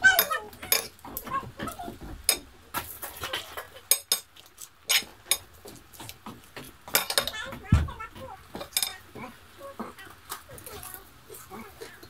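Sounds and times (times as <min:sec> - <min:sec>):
cutlery and dishes clinking: 0:00.0 - 0:09.2.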